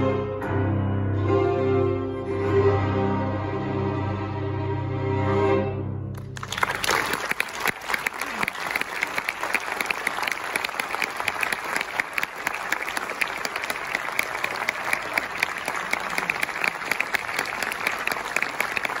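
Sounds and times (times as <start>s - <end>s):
audience applauding: 6.1s - 19.0s.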